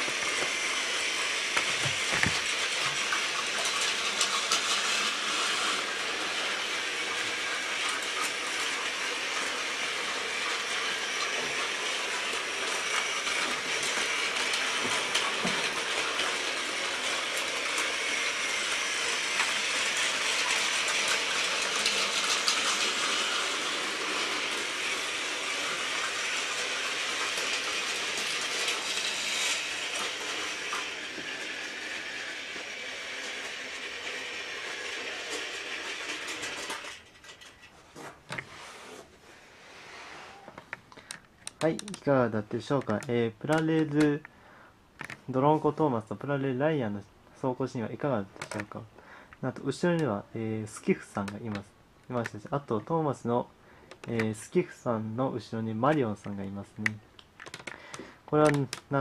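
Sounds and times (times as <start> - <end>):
wheels clicking on plastic track: 0.0 - 38.5, 40.9 - 44.3, 48.2 - 48.8, 49.4 - 52.9, 53.9 - 54.9, 55.5 - 59.0
toy train motor whir: 0.0 - 42.1, 56.8 - 59.0.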